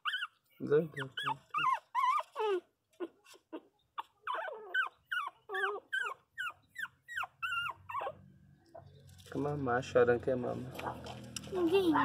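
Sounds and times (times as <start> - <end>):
puppies whimpering and crying: 0.0 - 8.3.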